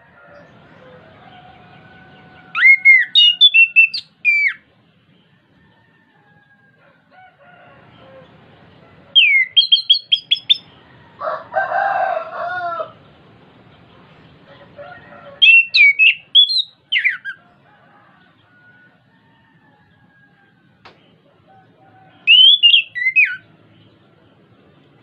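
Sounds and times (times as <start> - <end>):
low drawn-out bird call: 0.0 - 4.7, 7.9 - 11.3, 14.5 - 18.6, 20.9 - 23.5
thrush whistled song: 2.5 - 4.7, 9.2 - 10.7, 15.4 - 17.4, 22.2 - 23.5.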